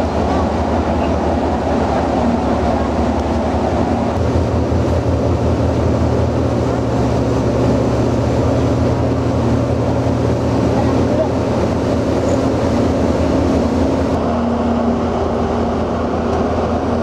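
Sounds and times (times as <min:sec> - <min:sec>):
propeller wash churning: 0:00.0 - 0:17.0
ship diesel engines droning: 0:00.0 - 0:17.0.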